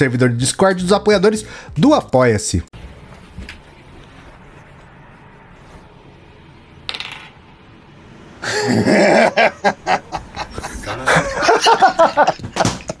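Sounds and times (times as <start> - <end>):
plastic die clattering on floor: 6.9 - 7.4
people laughing: 8.4 - 13.0.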